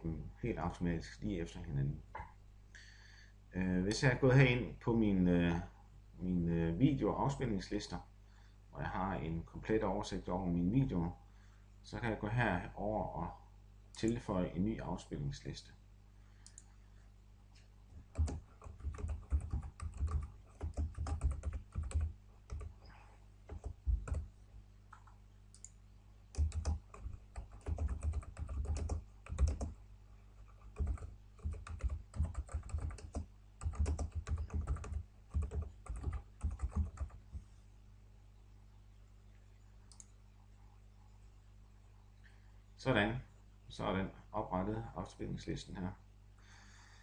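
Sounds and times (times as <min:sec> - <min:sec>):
computer keyboard typing: 0:18.0 - 0:22.9, 0:23.5 - 0:24.3, 0:26.3 - 0:29.8, 0:30.4 - 0:37.2.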